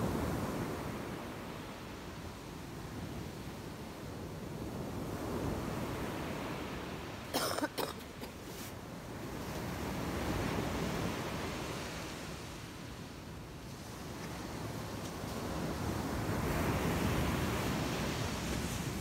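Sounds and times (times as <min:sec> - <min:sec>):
surf breaking on a beach: 0:08.0 - 0:19.0.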